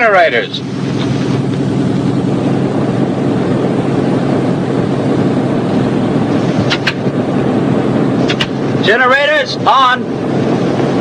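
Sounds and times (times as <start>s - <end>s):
radial aircraft engines droning: 0.0s - 11.0s
short sharp clicks: 8.3s - 8.6s.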